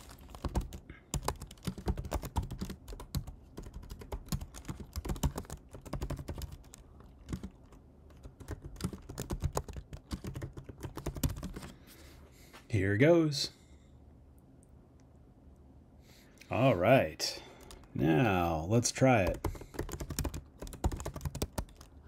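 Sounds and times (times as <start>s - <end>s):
keyboard typing clicks: 19.2s - 21.9s.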